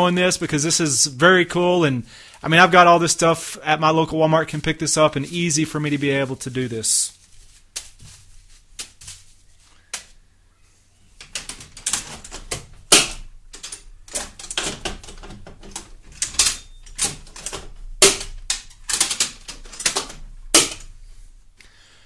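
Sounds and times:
ammo can lids clicking and clattering: 0:11.2 - 0:20.9.

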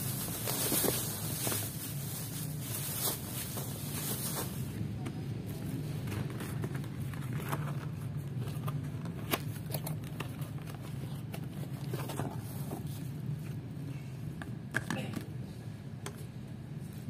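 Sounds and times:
cardboard box being handled: 0:00.0 - 0:01.8
plastic bag crinkling: 0:00.0 - 0:04.8.

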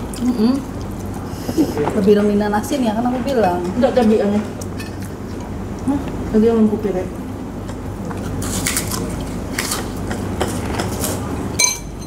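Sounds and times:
tableware clink: 0:11.6 - 0:12.0.

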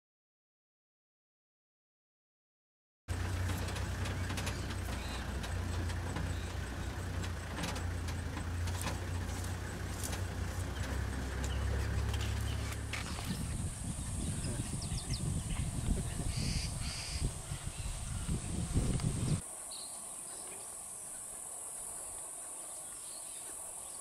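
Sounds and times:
vehicle engine idling: 0:03.1 - 0:19.4.

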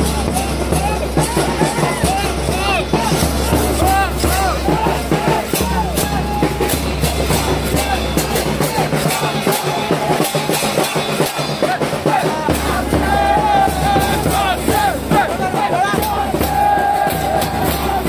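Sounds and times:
crowd chanting and singing: 0:00.0 - 0:18.0
steady drumbeat: 0:00.0 - 0:18.0.

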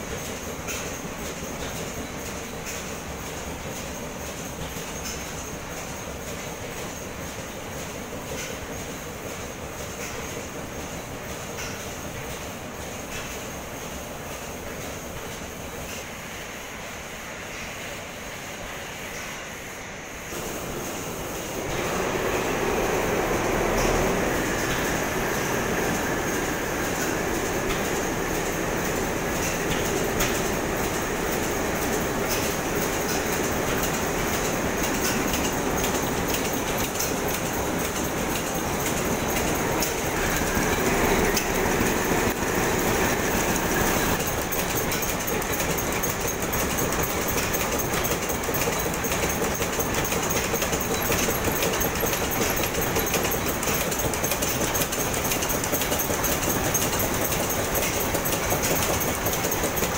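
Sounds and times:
stationary engines clattering: 0:20.3 - 0:59.9.

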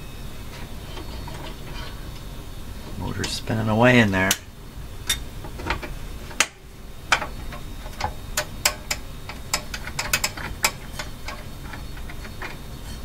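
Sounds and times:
low steady hum: 0:00.0 - 0:13.0
record changer mechanism clicking: 0:05.1 - 0:12.6.

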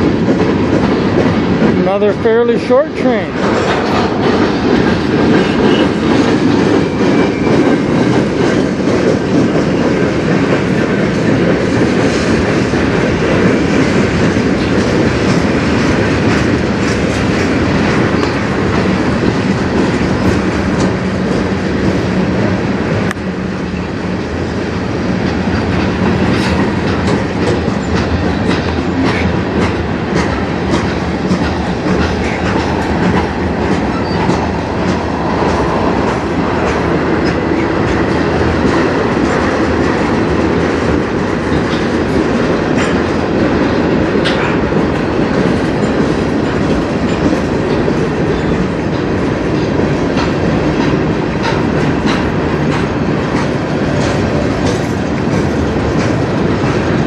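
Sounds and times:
train wheels rumbling on rails: 0:00.0 - 0:57.0
wheels clicking over track joints: 0:25.1 - 0:57.0.

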